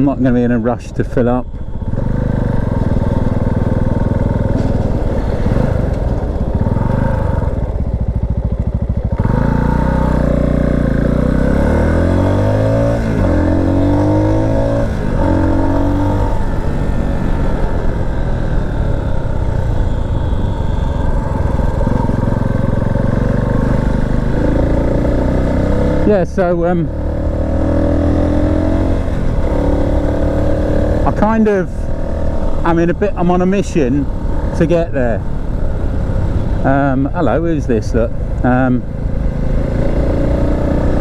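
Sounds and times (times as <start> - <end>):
motorcycle engine accelerating: 1.4 - 41.0.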